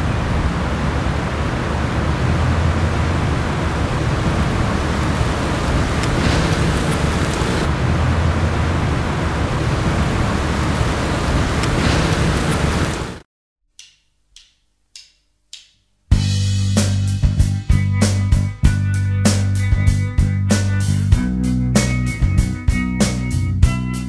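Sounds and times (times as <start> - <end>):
car driving slowly: 0.0 - 13.2.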